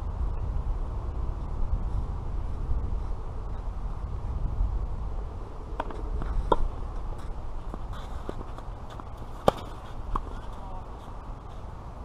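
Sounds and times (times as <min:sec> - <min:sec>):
low rumble: 0:00.0 - 0:10.5
tennis ball hits and bounces: 0:05.7 - 0:11.0.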